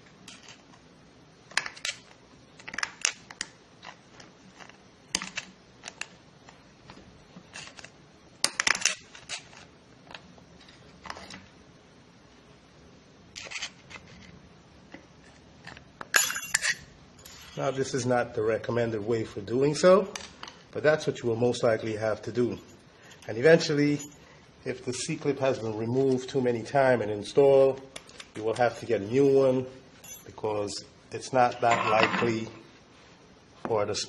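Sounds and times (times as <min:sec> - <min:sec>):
screwdriver clinking and scraping metal: 0:16.1 - 0:17.8, 0:31.6 - 0:32.5.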